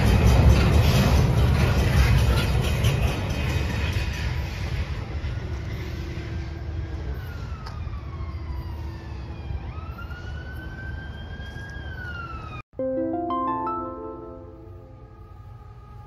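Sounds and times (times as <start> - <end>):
distant siren wailing: 5.8 - 12.7, 13.6 - 16.0.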